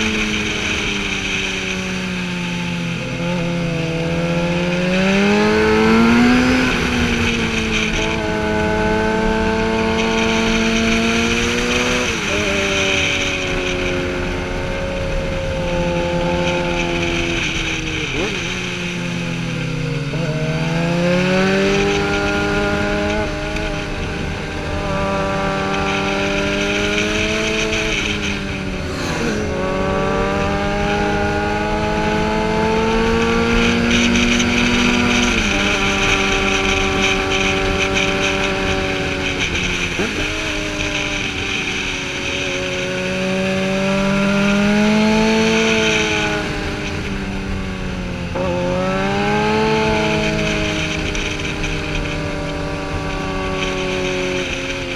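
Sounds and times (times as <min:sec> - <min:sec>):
motorcycle engine revving: 0:00.0 - 0:54.9
wind rush: 0:26.4 - 0:31.8.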